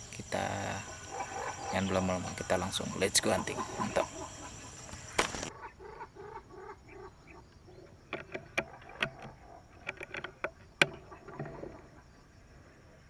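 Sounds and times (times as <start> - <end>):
sharp clicks and knocks: 8.1 - 11.6.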